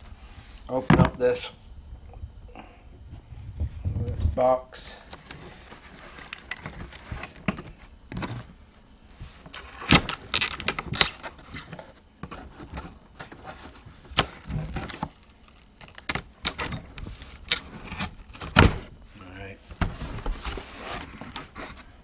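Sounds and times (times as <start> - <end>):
cardboard scraping and crackling: 5.0 - 8.6, 9.2 - 18.9, 19.7 - 22.0.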